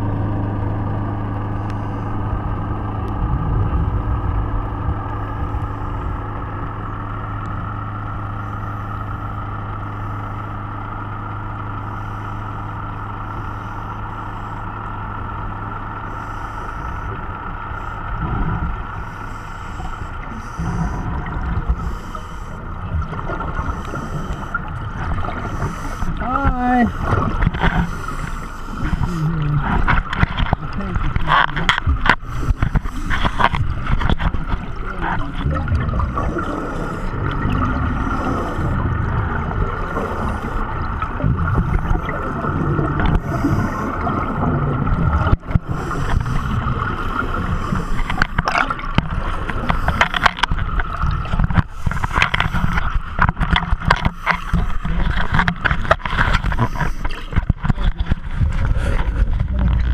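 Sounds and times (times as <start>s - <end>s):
low underwater rumble: 0.0s - 59.9s
bubbles gurgling underwater: 2.1s - 6.3s, 19.9s - 59.9s.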